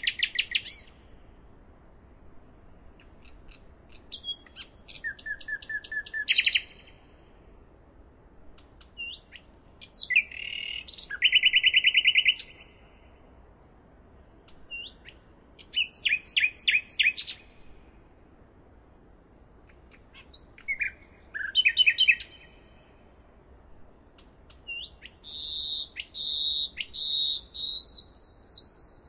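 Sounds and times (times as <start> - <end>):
nightingale singing: 0.0 - 1.4, 2.6 - 7.4, 8.5 - 13.5, 14.1 - 17.8, 19.6 - 29.0.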